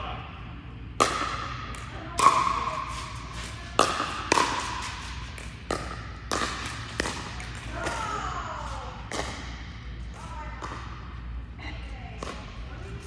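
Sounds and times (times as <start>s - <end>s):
paddles striking plastic ball: 3.7s - 8.0s.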